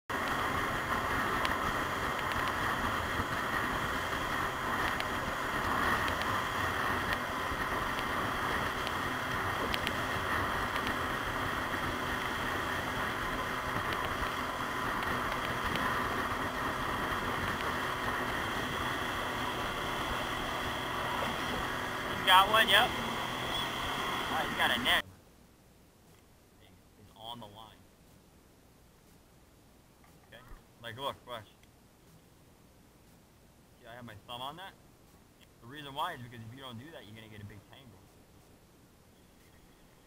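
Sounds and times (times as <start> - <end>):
outboard motor running: 0.1 - 25.0
water rushing along hull: 0.1 - 25.0.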